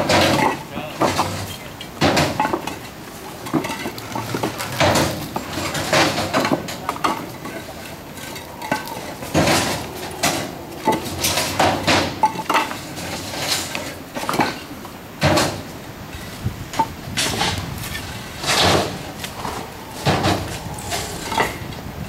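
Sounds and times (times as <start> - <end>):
concrete blocks knocking together: 0.0 - 15.6.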